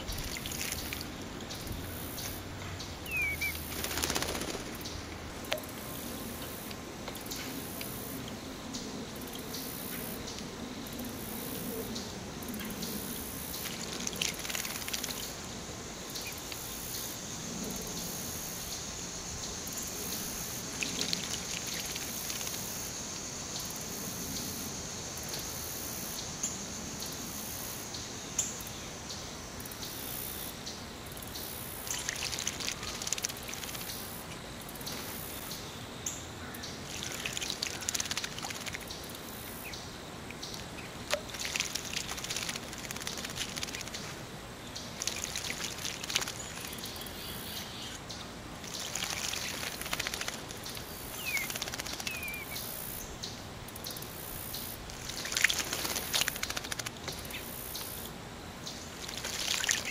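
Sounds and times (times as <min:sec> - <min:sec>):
bird splashing in water: 0:00.0 - 0:05.7, 0:13.5 - 0:15.4, 0:20.7 - 0:22.9, 0:31.8 - 0:34.1, 0:36.8 - 0:39.0, 0:41.0 - 0:47.1, 0:48.6 - 0:53.0, 0:54.9 - 0:57.7, 0:59.0 - 0:59.9.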